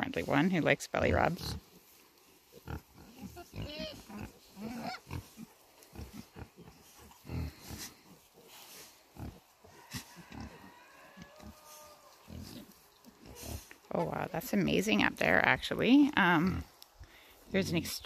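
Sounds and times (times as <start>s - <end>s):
pigs grunting: 2.5s - 14.4s
pig squealing: 3.4s - 5.3s, 9.3s - 12.7s.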